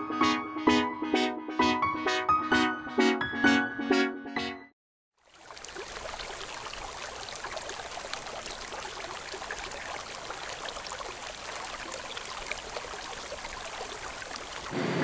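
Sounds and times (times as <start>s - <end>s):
water trickling: 5.2s - 14.8s.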